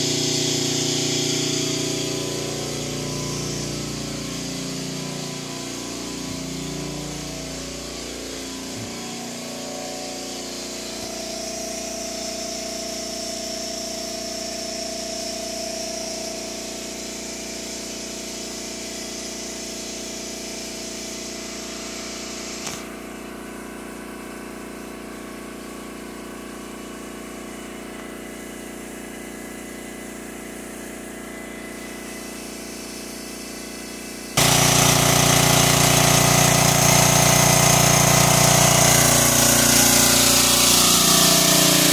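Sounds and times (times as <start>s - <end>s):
portable generator engine running: 0.0s - 11.9s, 34.4s - 41.9s.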